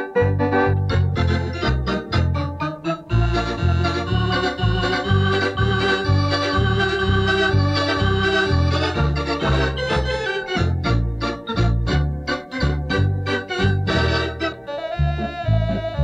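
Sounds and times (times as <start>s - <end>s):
electronic organ playing lively tune: 0.0s - 16.0s.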